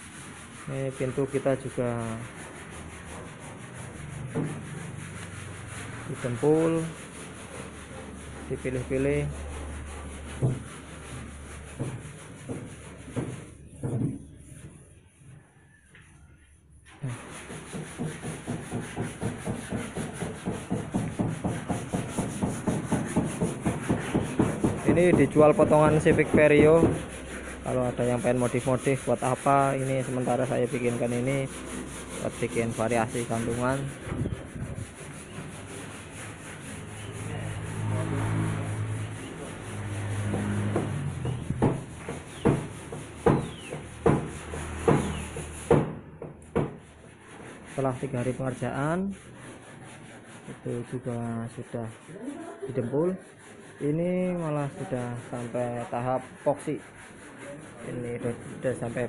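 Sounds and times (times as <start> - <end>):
hand sanding strokes: 0.0 - 59.0
hand tool striking car bodywork: 17.3 - 27.2, 39.4 - 46.9.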